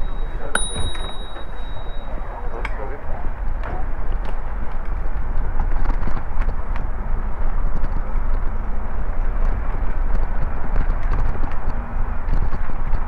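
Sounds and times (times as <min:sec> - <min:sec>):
wind and road rumble: 0:00.0 - 0:13.0
bicycle clicks and rattles: 0:04.1 - 0:13.0.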